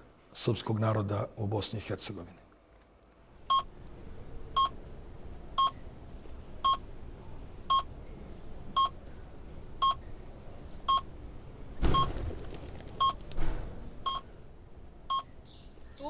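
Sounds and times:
patient monitor beeping: 0:03.5 - 0:03.7, 0:04.5 - 0:04.8, 0:05.6 - 0:05.8, 0:06.6 - 0:06.9, 0:07.7 - 0:07.9, 0:08.8 - 0:09.0, 0:09.8 - 0:10.0, 0:10.9 - 0:11.1, 0:13.0 - 0:13.2, 0:14.0 - 0:14.3.

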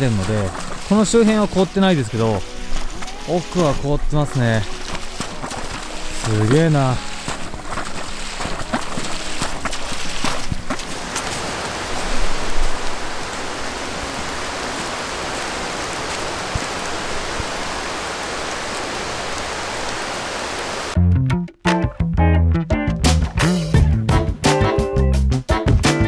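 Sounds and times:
ice crunching: 0:00.0 - 0:12.9
water pouring into pond: 0:00.0 - 0:20.9.

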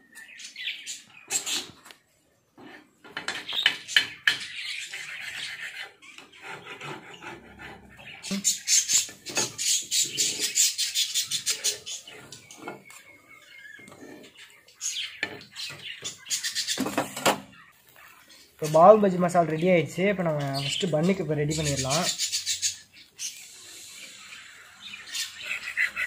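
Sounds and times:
metal spatula scraping on iron pan: 0:02.6 - 0:17.5.

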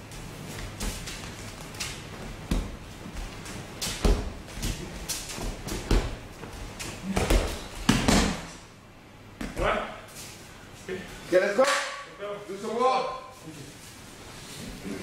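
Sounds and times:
bare feet stamping on mats: 0:00.0 - 0:08.6.

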